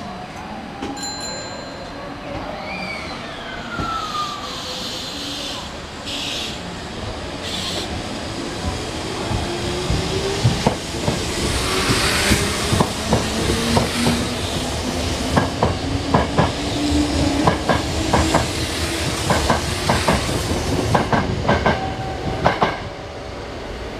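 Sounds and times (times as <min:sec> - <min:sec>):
train wheels clicking over rail joints: 0:08.5 - 0:22.9.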